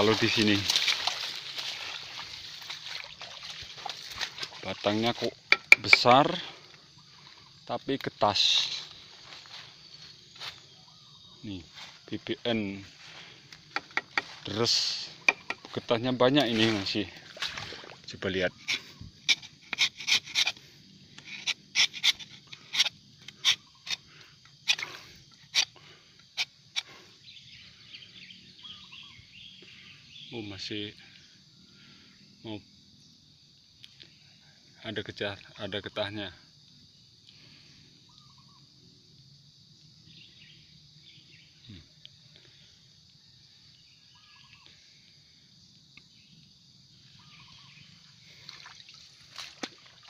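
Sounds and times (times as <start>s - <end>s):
insect chorus chirring: 0.0s - 50.0s
knife scraping tree bark: 5.4s - 6.1s, 15.2s - 15.8s, 18.6s - 26.9s.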